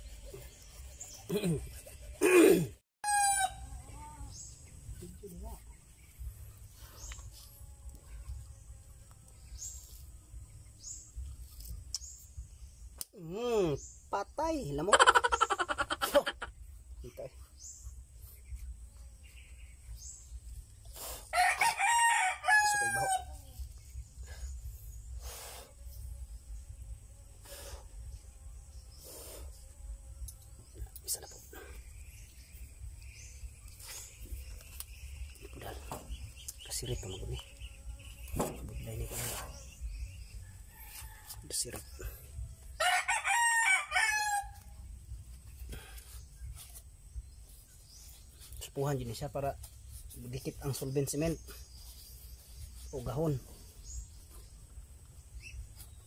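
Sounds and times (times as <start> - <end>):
rooster crowing: 3.0 - 3.8, 21.3 - 23.4, 42.8 - 44.6
abrasive scraping plastic pipe: 38.2 - 39.8.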